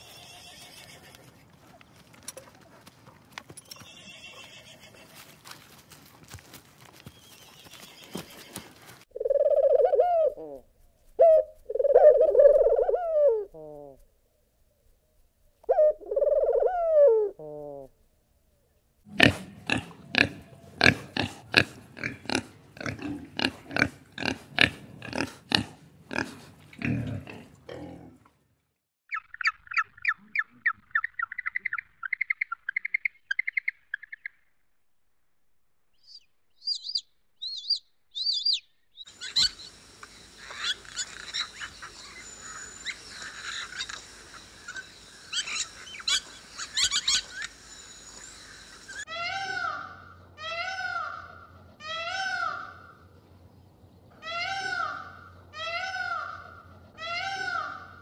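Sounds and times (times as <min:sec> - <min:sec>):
pig grunting: 0:19.1 - 0:28.3
high chirps: 0:36.0 - 0:49.6
chorus of bird calls: 0:36.0 - 0:53.4, 0:54.1 - 0:58.0.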